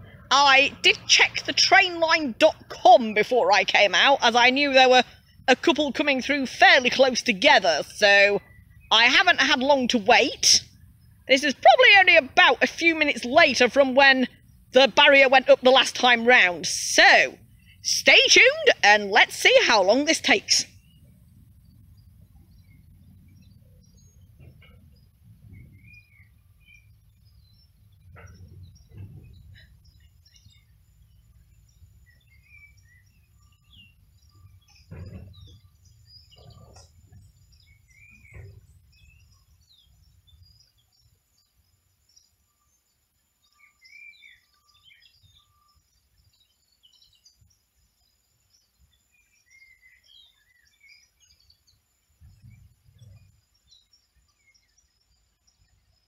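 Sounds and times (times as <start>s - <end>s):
low rumble: 0.0s - 2.7s, 20.7s - 40.5s
small birds chirping: 0.0s - 56.0s
dull thumps: 27.9s - 30.0s, 34.5s - 39.0s.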